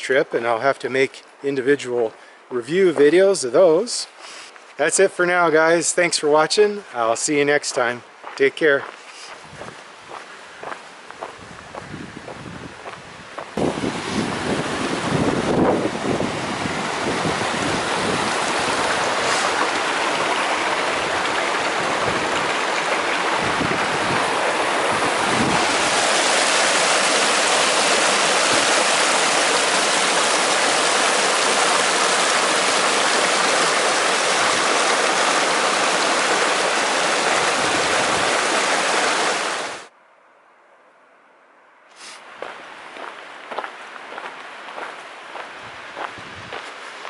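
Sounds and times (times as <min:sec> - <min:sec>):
rushing creek water: 0:13.4 - 0:39.9, 0:42.0 - 0:47.0.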